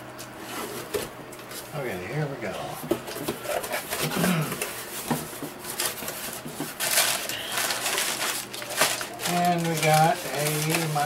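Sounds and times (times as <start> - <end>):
paper packing crinkling: 3.1 - 11.0.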